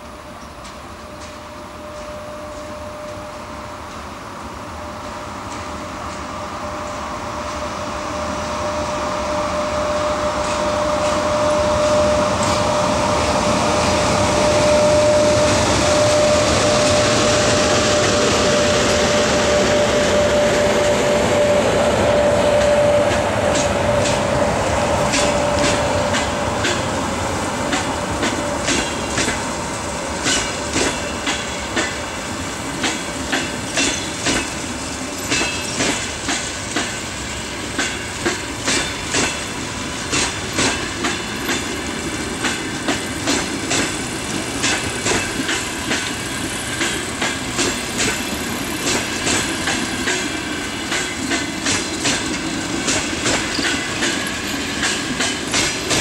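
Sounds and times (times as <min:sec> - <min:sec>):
electric locomotive whine: 0:00.0 - 0:56.0
train coaches rolling by: 0:00.0 - 0:56.0
wheels clicking over rail joints: 0:32.7 - 0:56.0.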